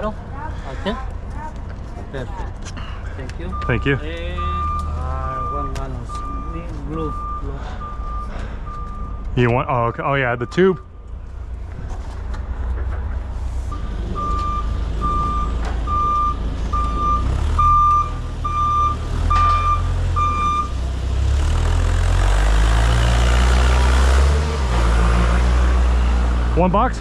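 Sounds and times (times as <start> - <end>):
back-up alarm beeping: 3.5 - 9.6, 10.4 - 11.0, 13.7 - 20.8
forklift engine running: 10.8 - 27.0.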